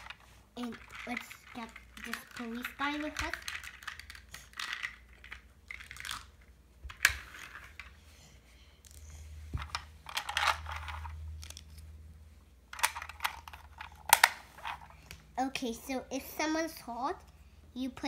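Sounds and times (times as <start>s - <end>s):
plastic toy pieces clicking: 0.0s - 7.9s, 9.7s - 11.7s, 12.8s - 14.9s.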